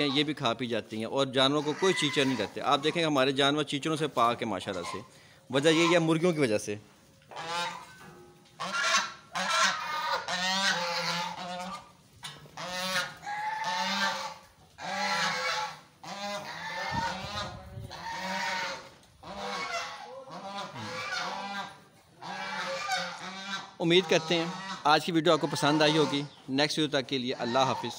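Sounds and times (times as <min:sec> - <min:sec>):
goose honking: 0:01.4 - 0:03.1, 0:04.7 - 0:06.3, 0:07.3 - 0:08.0, 0:08.6 - 0:12.0, 0:12.6 - 0:26.4, 0:27.3 - 0:27.9.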